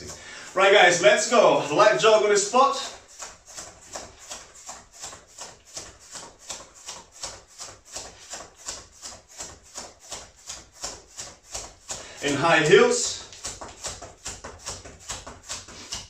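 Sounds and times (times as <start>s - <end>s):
footfalls jogging on the spot: 0.0s - 16.0s.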